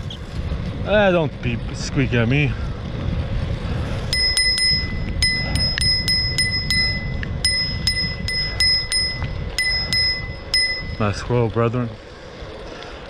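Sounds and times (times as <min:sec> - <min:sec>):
wind and tyres on pavement: 0:00.0 - 0:13.0
bicycle bell dinging: 0:04.1 - 0:11.4.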